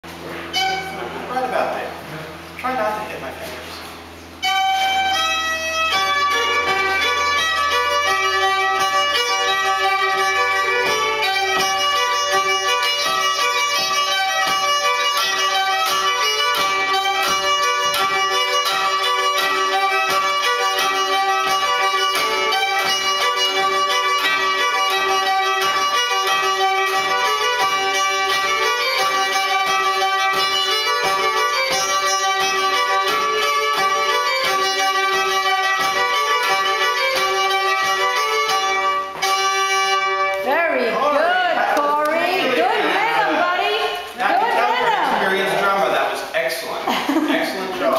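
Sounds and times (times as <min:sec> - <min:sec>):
fiddle playing: 0:00.0 - 0:02.0, 0:04.0 - 0:46.8
sticks clicking on strings: 0:08.8 - 0:38.8.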